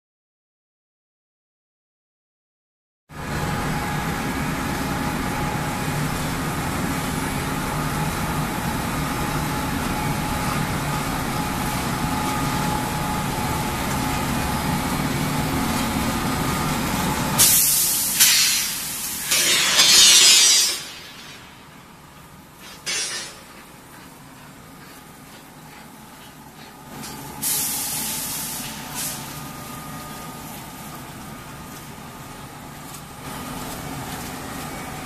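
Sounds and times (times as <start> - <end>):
machine hum and whine: 3.1 - 35.0
loud hisses: 17.4 - 21.4.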